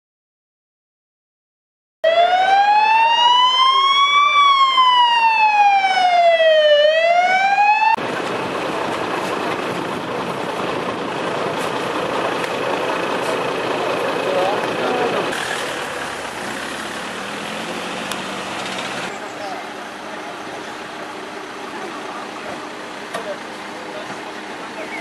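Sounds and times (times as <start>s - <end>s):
emergency vehicle siren wailing: 2.0s - 23.0s
outdoor background noise: 2.0s - 25.0s.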